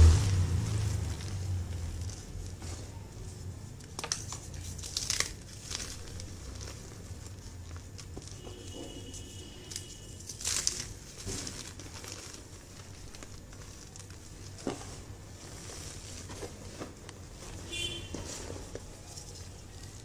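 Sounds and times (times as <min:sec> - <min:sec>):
chalk powder crumbling and rustling: 0:00.0 - 0:20.0.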